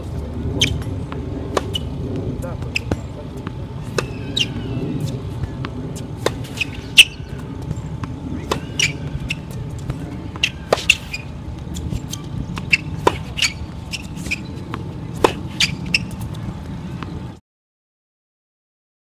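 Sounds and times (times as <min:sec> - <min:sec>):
tennis ball bouncing: 0:00.0 - 0:17.2
tennis ball hits: 0:00.6 - 0:01.9, 0:05.5 - 0:16.2.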